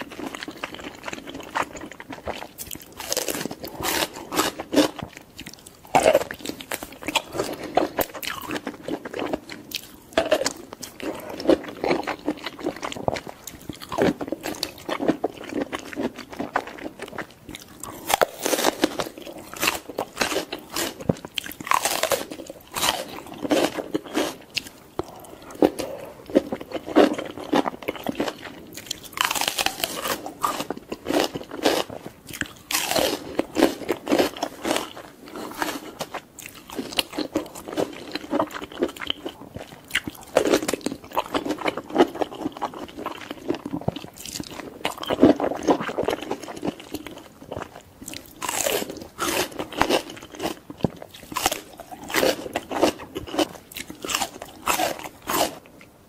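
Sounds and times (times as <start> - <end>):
crunching bites and chewing: 0.0 - 55.7.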